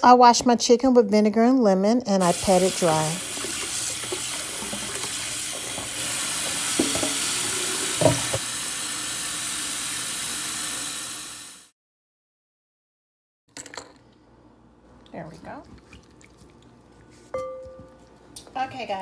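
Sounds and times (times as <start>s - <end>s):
faucet water splashing into bowl: 2.2s - 11.6s.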